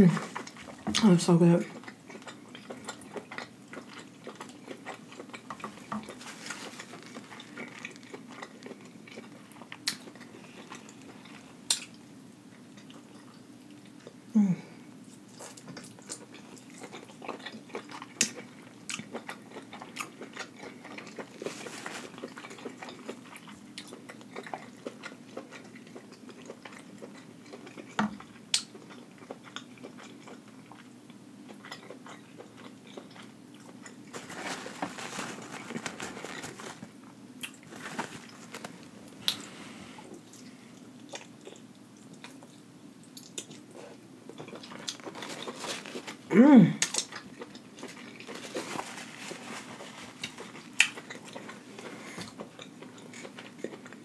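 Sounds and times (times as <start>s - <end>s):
close chewing and mouth sounds: 0.0s - 54.0s.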